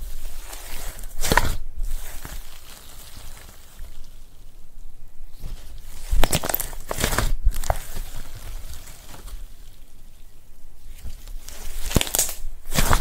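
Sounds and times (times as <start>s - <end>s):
slime squeezed with wet crackles: 5.9s - 9.7s, 11.4s - 13.0s.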